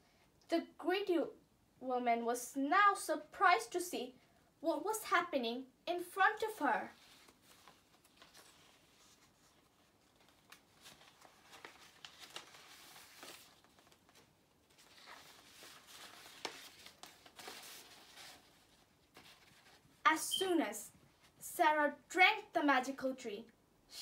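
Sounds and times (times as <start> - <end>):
paper sheets rustling: 6.9 - 20.0.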